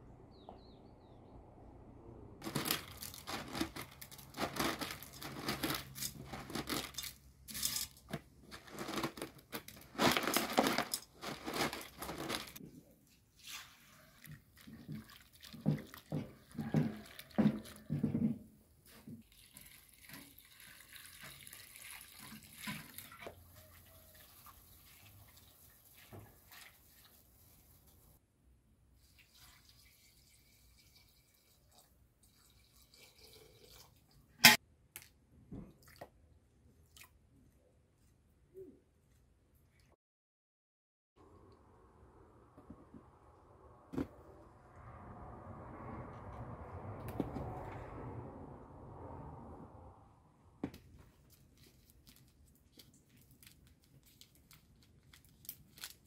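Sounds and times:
dried vegetable strips crackling: 2.4s - 12.6s, 51.3s - 56.0s.

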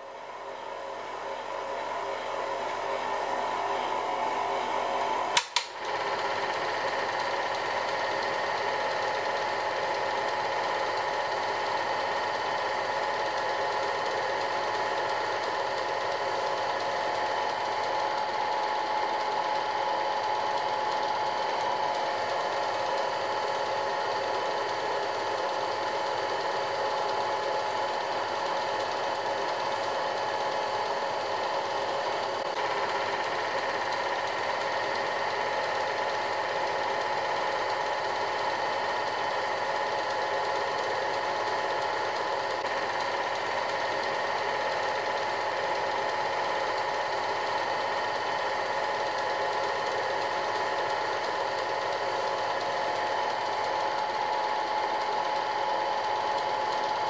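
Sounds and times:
film projector whirring: 0.0s - 57.0s
projector click: 5.3s - 5.9s.

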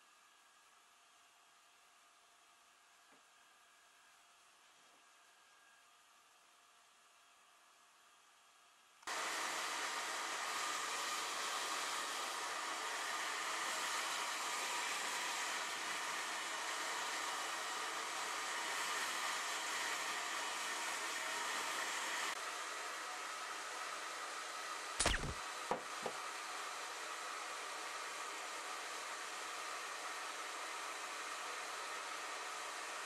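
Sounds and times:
hair dryer running: 9.1s - 22.3s.

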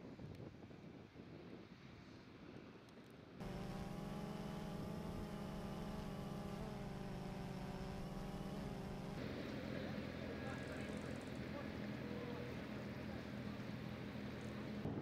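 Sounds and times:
wind rumble on microphone: 0.0s - 7.0s, 14.8s - 15.0s
steady motor hum: 3.4s - 15.0s.

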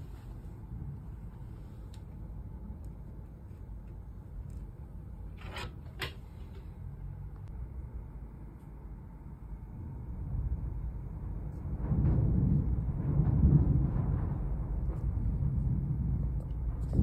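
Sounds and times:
low room rumble: 0.0s - 17.0s
phone scraping on wooden table: 5.4s - 6.6s.

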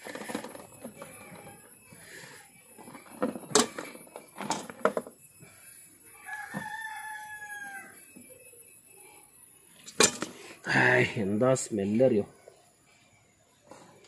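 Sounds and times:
rooster crowing: 6.2s - 8.2s.

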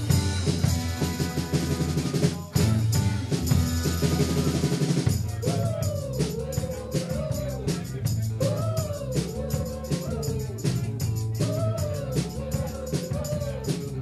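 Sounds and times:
melody line over band: 0.0s - 4.8s
kick and snare drum beat: 0.0s - 14.0s
live rock band playing: 0.0s - 14.0s.

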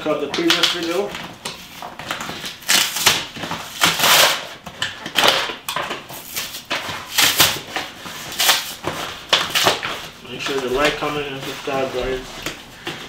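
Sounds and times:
cardboard flaps scraping and rustling: 6.2s - 13.0s.

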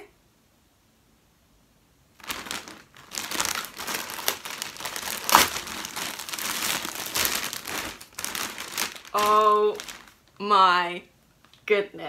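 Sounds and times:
plastic bag crinkling: 2.2s - 10.4s.

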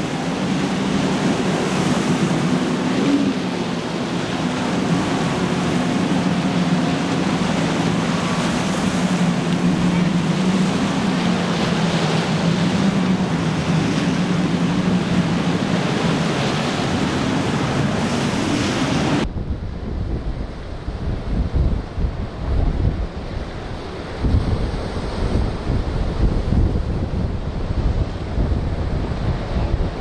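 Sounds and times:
motorboat engines droning: 0.0s - 19.3s
waves: 0.0s - 30.0s
wind noise: 0.0s - 30.0s.

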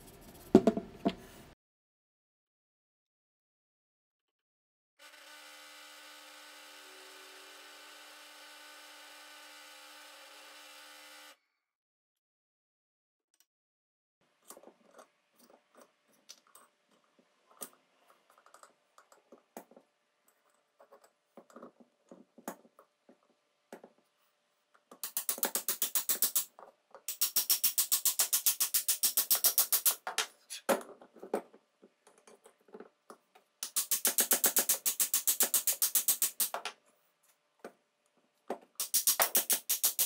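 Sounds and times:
metal parts clicking and knocking: 14.4s - 22.9s, 24.8s - 33.0s, 33.6s - 36.8s, 38.8s - 40.0s.

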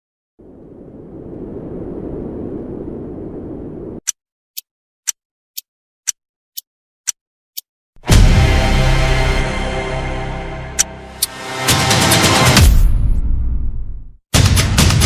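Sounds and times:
low rumbling noise: 0.4s - 4.0s
loud music hit: 8.0s - 13.4s.

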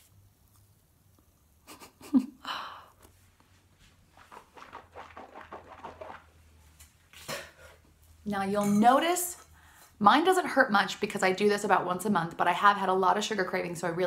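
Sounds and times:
toothbrush scrubbing teeth: 4.1s - 6.3s.

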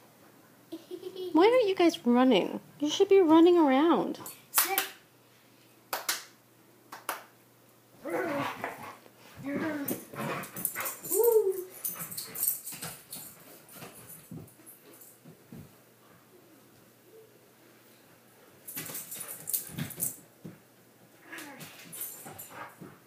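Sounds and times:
dog whining: 8.0s - 8.7s, 9.4s - 11.9s.

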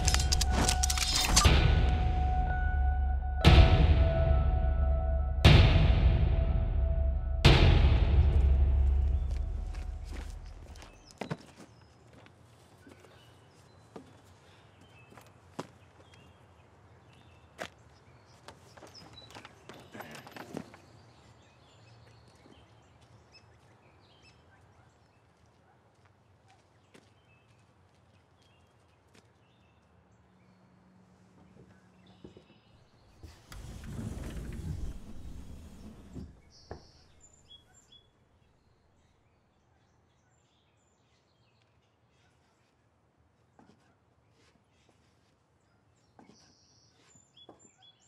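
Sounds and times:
sharp click: 0.0s - 1.7s.

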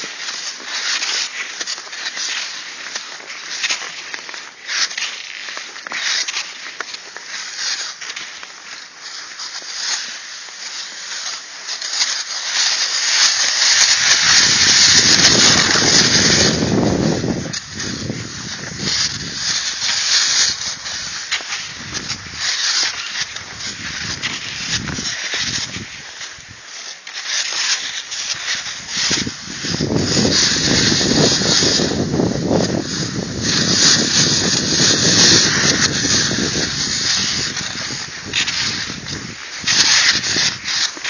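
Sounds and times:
skis swishing on snow: 0.0s - 41.0s
wind buffeting microphone: 14.1s - 19.5s, 28.8s - 40.6s.

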